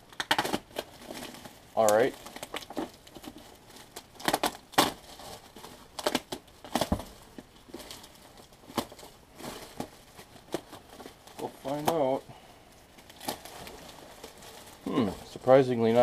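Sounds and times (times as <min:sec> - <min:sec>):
bubble wrap and plastic crinkling: 0:00.0 - 0:16.0.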